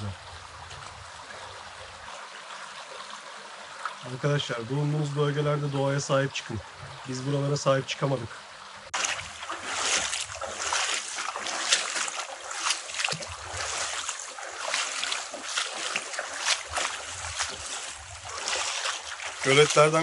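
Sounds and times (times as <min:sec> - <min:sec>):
stream water running and splashing: 0:00.0 - 0:20.0
wind rumble on microphone: 0:16.7 - 0:18.4.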